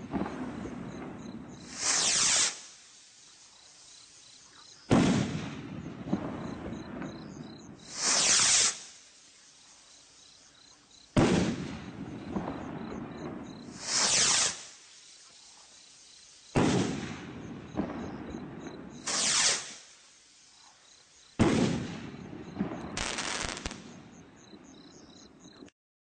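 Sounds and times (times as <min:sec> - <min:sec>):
firework rocket whoosh: 0:00.0 - 0:03.3, 0:07.8 - 0:09.4, 0:11.2 - 0:15.1, 0:18.9 - 0:20.0, 0:22.9 - 0:24.0
firework crackling: 0:00.0 - 0:10.3, 0:11.1 - 0:24.2
crickets chirping: 0:00.0 - 0:25.7
firework bang with echo: 0:04.9 - 0:07.2, 0:11.2 - 0:14.6, 0:16.6 - 0:18.2, 0:21.4 - 0:23.9.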